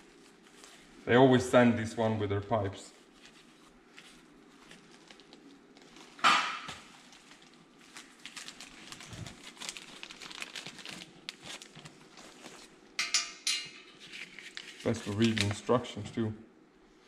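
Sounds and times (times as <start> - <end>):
plastic packaging crinkling: 3.0 - 12.8, 14.0 - 16.0.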